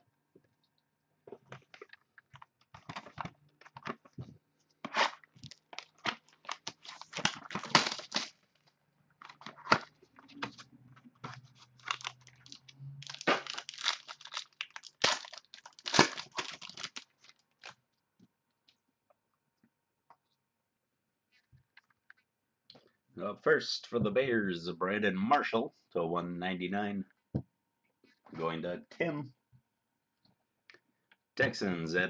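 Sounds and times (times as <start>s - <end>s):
plastic wrapping crinkling and tearing: 4.9s - 10.7s, 11.4s - 17.8s.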